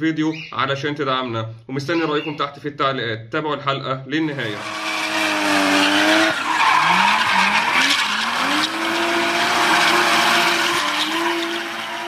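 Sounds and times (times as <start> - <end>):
tyres screeching: 4.3 - 12.0
sports car engine revving: 4.4 - 12.0.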